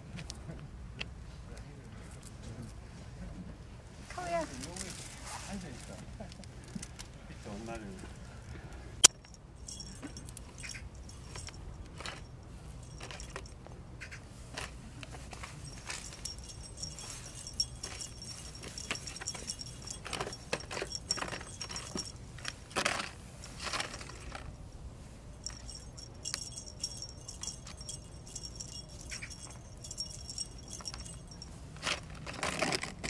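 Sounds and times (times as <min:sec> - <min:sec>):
cat toy jingling: 0:09.0 - 0:13.8, 0:15.4 - 0:22.6, 0:25.3 - 0:31.8
plastic toys clicking and rattling: 0:15.3 - 0:24.5, 0:25.4 - 0:33.0.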